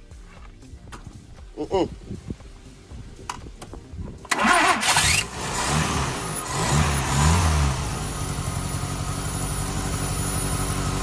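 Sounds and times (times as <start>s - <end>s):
car engine starting and idling: 3.6s - 11.0s.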